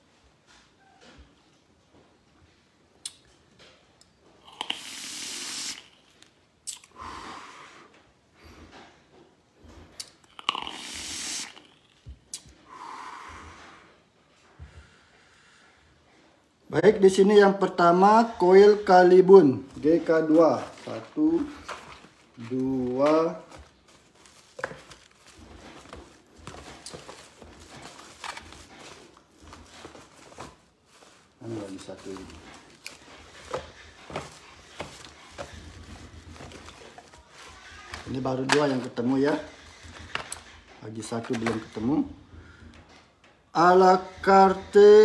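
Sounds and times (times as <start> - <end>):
person exhaling vapour: 4.4 - 6.0, 6.8 - 7.9, 10.5 - 11.7, 12.6 - 14.0
packing rustling: 18.6 - 41.8.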